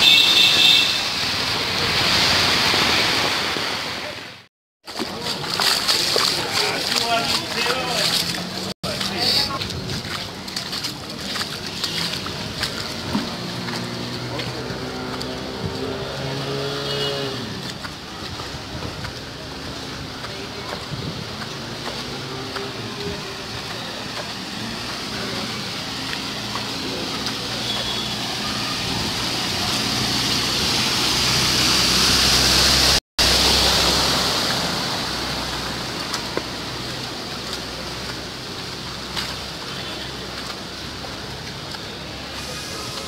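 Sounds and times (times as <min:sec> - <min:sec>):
heavy rain on flooded street: 0:00.0 - 0:43.0.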